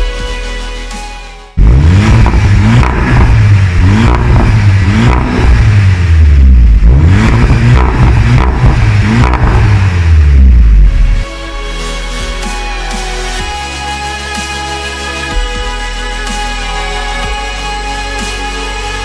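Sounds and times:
car engine revving: 0:01.6 - 0:11.3.

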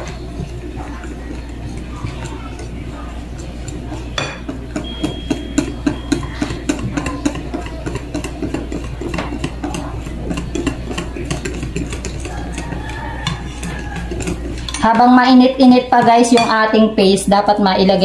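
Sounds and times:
whisk swishing batter: 0:00.0 - 0:18.0
whisk clicking against glass: 0:00.8 - 0:15.0.

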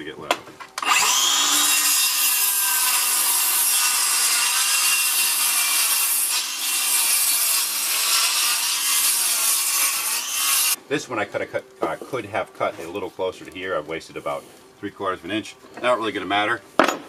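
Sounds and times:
circular saw cutting wood: 0:00.8 - 0:10.8.

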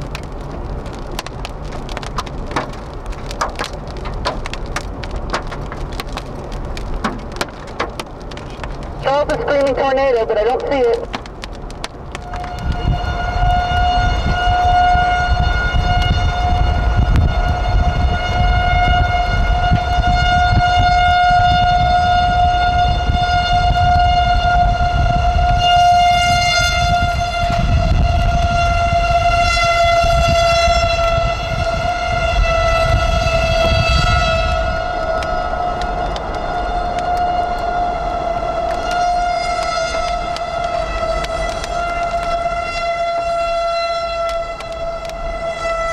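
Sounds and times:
road noise: 0:00.0 - 0:45.9
warning siren wailing: 0:00.0 - 0:45.9
wind rumble: 0:00.0 - 0:45.9.

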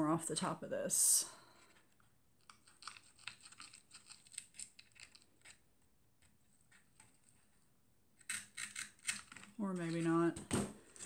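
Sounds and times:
utility knife cutting cardboard: 0:08.2 - 0:10.0.

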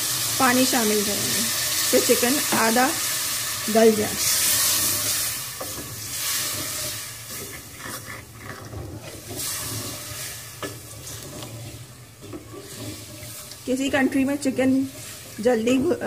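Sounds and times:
food sizzling in pot: 0:00.0 - 0:16.0
spoon knocking and scraping pot: 0:04.8 - 0:16.0.

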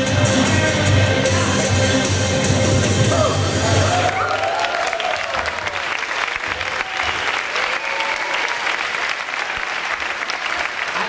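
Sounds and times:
dance music: 0:00.0 - 0:04.3
group applauding: 0:03.7 - 0:11.0.

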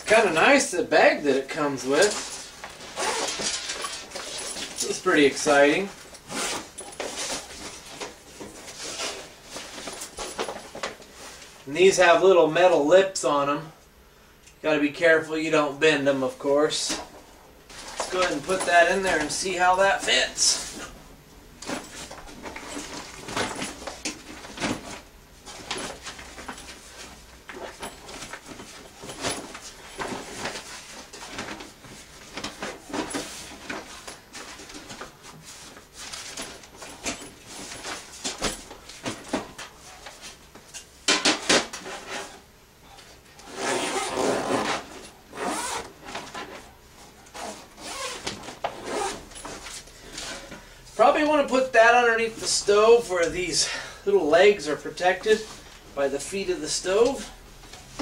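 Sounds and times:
fabric bag rustling: 0:02.0 - 0:05.1.

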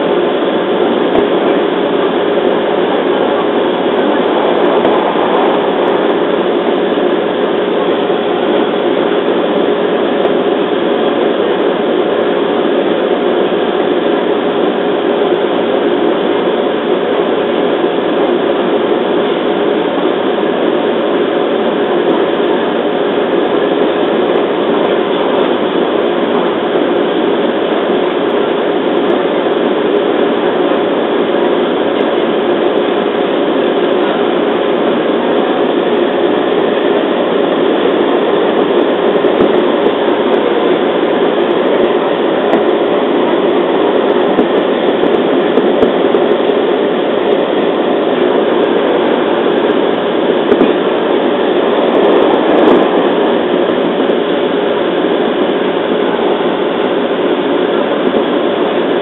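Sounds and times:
steady electric hum: 0:00.0 - 0:59.0.

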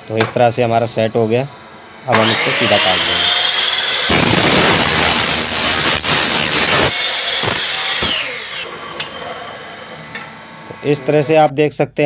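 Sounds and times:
saw motor whine spinning down: 0:00.8 - 0:11.4
miter saw cutting aluminium: 0:02.0 - 0:11.4.

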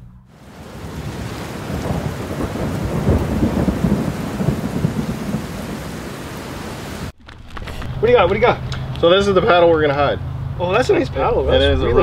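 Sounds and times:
thunder rumbling: 0:00.3 - 0:09.0
steady rain: 0:00.3 - 0:09.6.

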